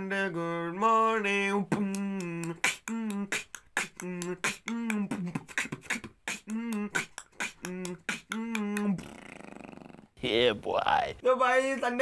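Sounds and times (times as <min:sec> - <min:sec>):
hummed beatbox notes: 0:01.5 - 0:10.1
hissy beatbox snare: 0:01.7 - 0:09.3
mouth clicks: 0:01.7 - 0:10.2.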